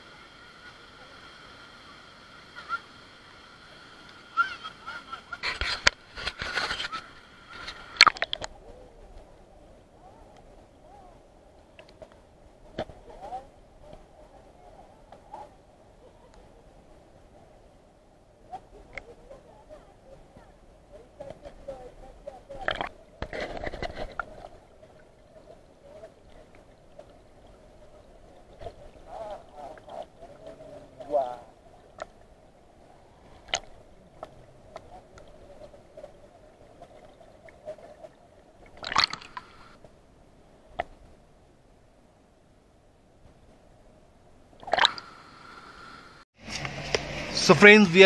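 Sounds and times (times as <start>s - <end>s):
stream gurgling underwater: 0.0s - 9.5s, 22.4s - 39.8s, 44.5s - 46.0s
stream rushing over rocks: 37.6s - 39.9s, 44.6s - 48.0s
splashes and knocks: 38.7s - 39.4s.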